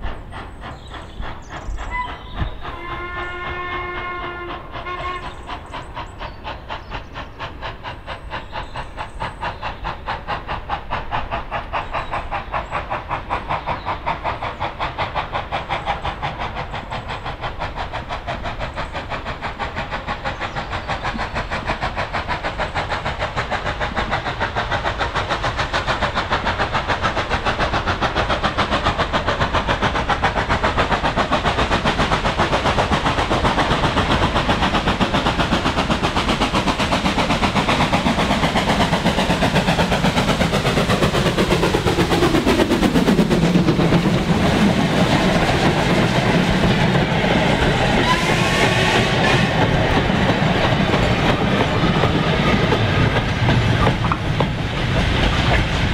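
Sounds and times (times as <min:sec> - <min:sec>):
steam locomotive exhaust beats: 0:00.0 - 0:55.9
wagons clattering over rail joints: 0:49.6 - 0:55.9.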